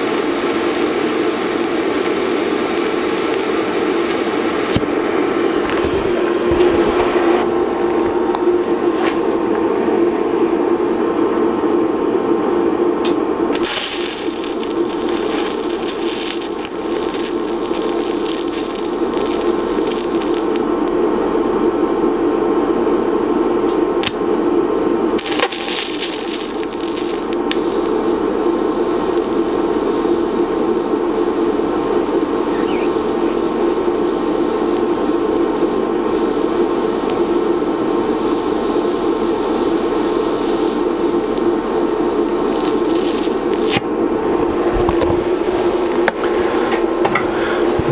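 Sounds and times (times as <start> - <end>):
welding arc hissing: 0.0 - 5.0, 13.5 - 20.7, 25.2 - 43.9
steady low drone: 0.0 - 47.9.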